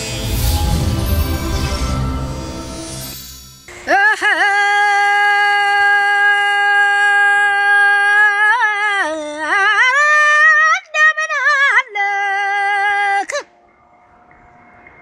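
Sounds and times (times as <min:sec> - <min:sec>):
woman singing unaccompanied: 0:03.8 - 0:13.5.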